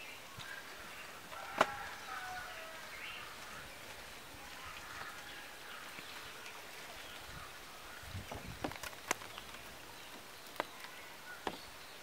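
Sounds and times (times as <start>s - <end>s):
faint bird calls: 0.0s - 12.0s.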